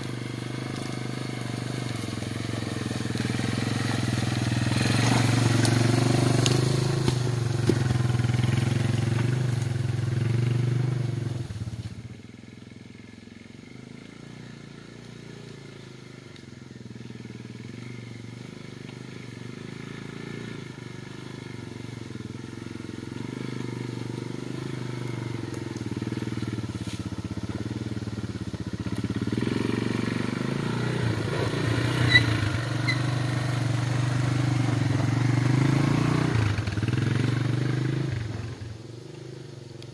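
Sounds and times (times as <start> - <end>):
atv engine running: 0.0 - 39.9.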